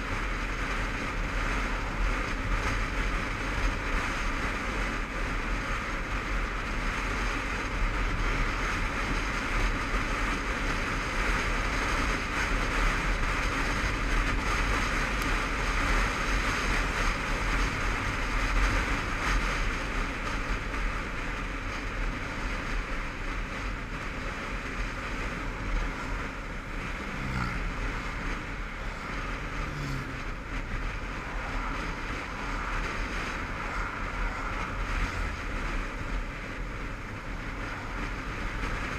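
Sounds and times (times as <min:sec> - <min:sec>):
motorcycle engine and road noise: 0:00.0 - 0:38.9
wind rush over helmet: 0:23.1 - 0:38.9.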